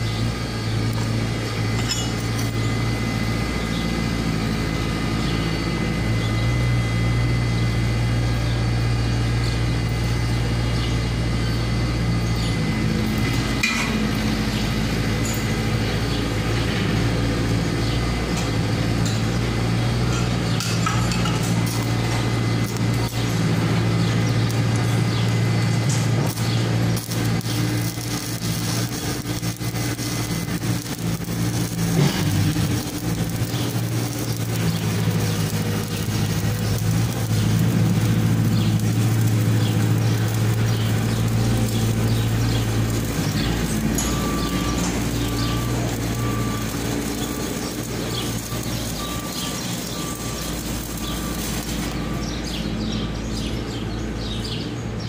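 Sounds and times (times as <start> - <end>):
engine running: 0.0 - 55.0.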